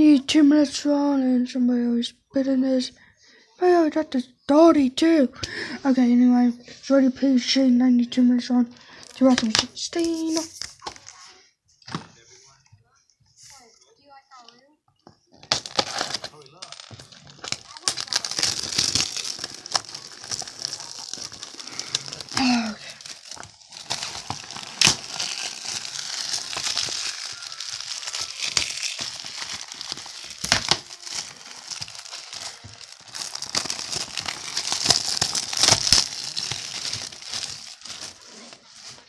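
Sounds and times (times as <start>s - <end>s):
plastic packaging crinkling: 15.4s - 39.0s.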